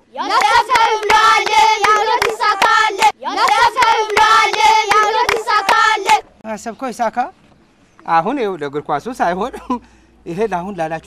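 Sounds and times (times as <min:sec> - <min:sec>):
boys singing a chant: 0:00.2 - 0:06.2
hand claps: 0:00.4 - 0:06.2.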